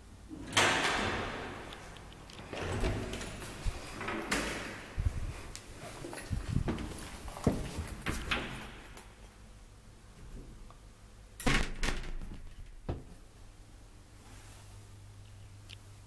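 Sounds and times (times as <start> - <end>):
elevator door closing clunk: 0.4 - 5.0
elevator door knocks and rattle: 0.4 - 5.0, 11.5 - 13.2.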